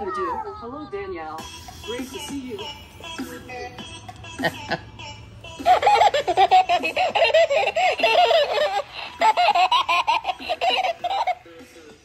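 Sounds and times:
toy giggling from speaker: 5.6s - 11.4s.

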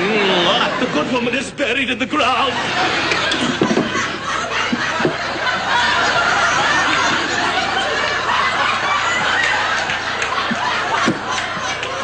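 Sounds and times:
studio audience laughing: 0.0s - 1.5s, 2.2s - 12.0s
stifled laughs of performers: 2.4s - 12.0s.

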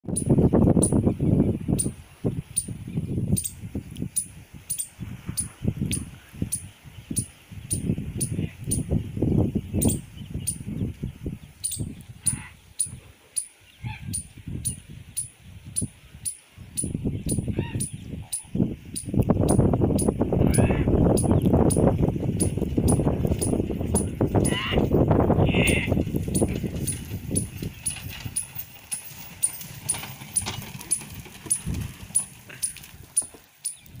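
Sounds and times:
wind buffeting microphone: 0.0s - 34.0s
short bird calls: 11.6s - 15.4s
oxen hoofbeats: 22.4s - 33.8s
wooden cart knocking and rattling: 26.0s - 33.4s.

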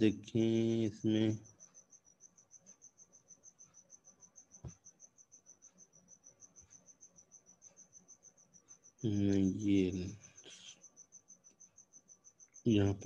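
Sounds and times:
faint high insect-like chirping: 0.0s - 13.0s.

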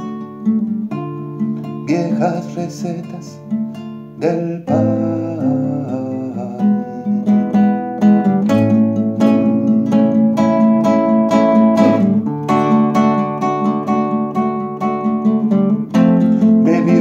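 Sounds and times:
classical guitar strummed chords: 0.0s - 17.0s.

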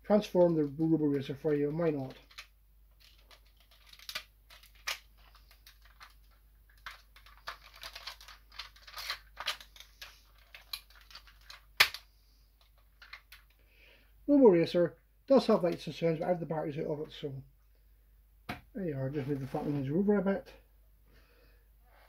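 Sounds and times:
plastic parts snapping into place: 11.8s - 12.0s.

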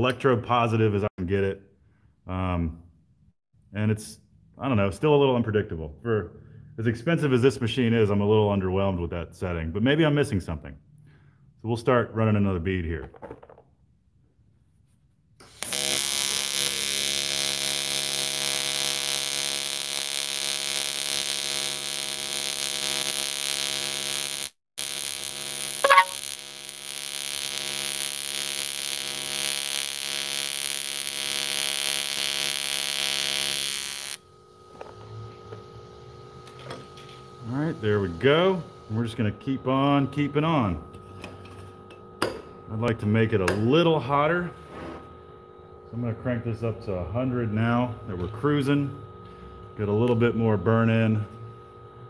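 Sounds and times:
welding arc buzz: 15.4s - 39.0s.

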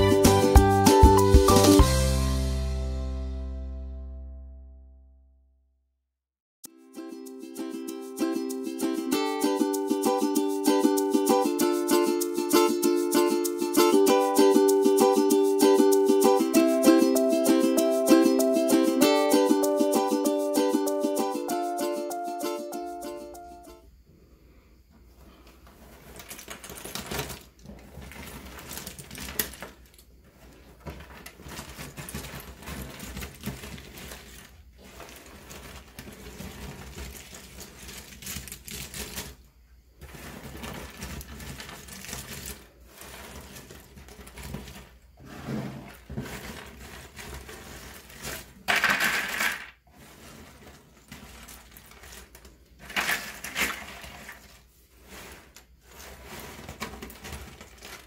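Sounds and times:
jigsaw pieces clattering and rustling: 25.9s - 39.4s, 40.0s - 44.9s, 46.0s - 54.6s, 55.5s - 58.0s.

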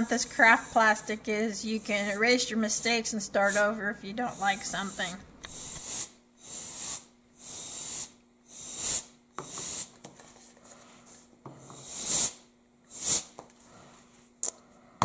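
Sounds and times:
compressed air hissing blasts: 0.4s - 9.9s, 11.8s - 13.4s.

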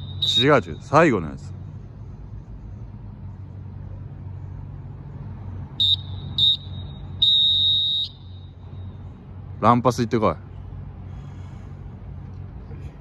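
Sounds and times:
electronic whistle beeps: 0.0s - 0.9s, 5.8s - 8.6s
low hum: 0.0s - 7.2s.

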